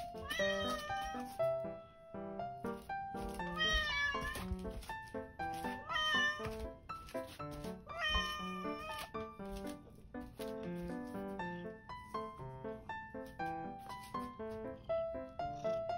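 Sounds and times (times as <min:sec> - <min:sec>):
cat meowing: 0:00.0 - 0:01.4, 0:03.4 - 0:04.8, 0:05.5 - 0:06.7, 0:07.8 - 0:09.2.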